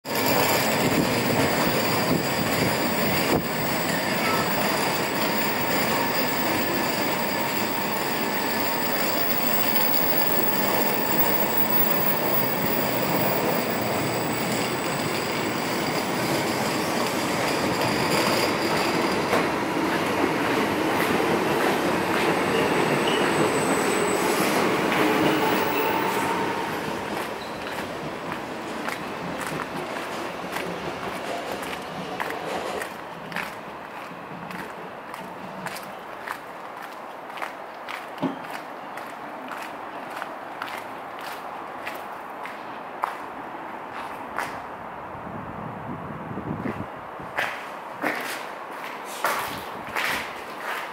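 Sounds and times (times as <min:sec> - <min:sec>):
electric train running noise: 0:00.1 - 0:20.3
high train whines: 0:00.1 - 0:37.4.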